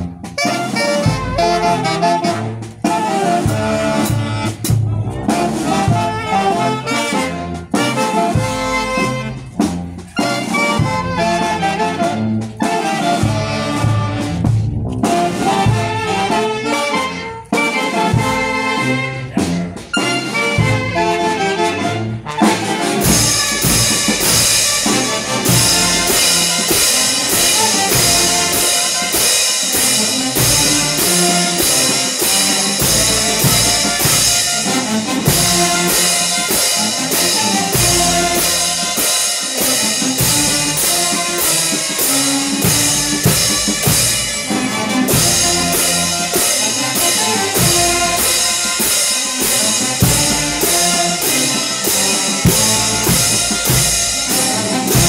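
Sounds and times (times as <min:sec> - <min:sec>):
bass drum and cymbals beat: 0:00.0 - 0:17.2, 0:18.0 - 0:55.0
brass band playing: 0:00.0 - 0:55.0.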